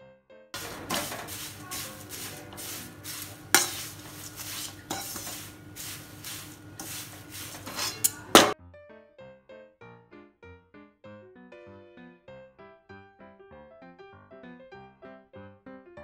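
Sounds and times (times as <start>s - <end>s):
dry flakes rustling in a pan: 0.6s - 8.6s
spatula clanking against a pan: 0.6s - 8.6s
spatula scraping a pan: 0.6s - 8.6s.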